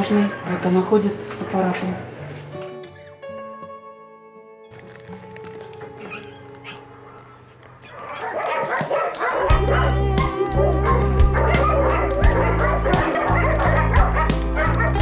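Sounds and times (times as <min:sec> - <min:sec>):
puppies yapping and whimpering: 0:06.0 - 0:15.0
music with deep bass: 0:09.4 - 0:15.0.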